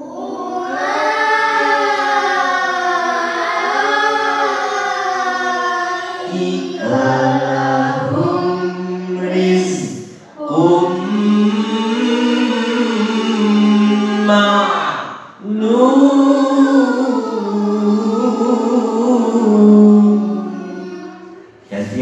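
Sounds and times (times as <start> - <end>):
person chanting recitation: 0.0 - 22.0
low male voice: 21.6 - 22.0.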